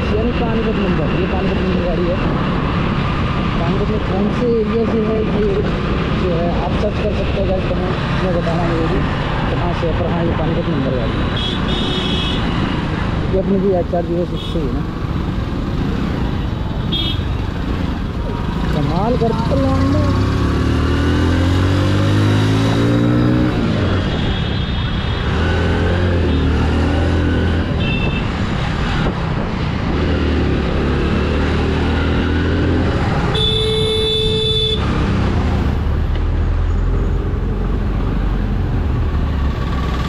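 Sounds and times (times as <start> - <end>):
traffic noise: 0.0 - 40.0
vehicle horn: 11.4 - 12.5, 16.9 - 17.3, 27.8 - 28.3, 33.3 - 34.9.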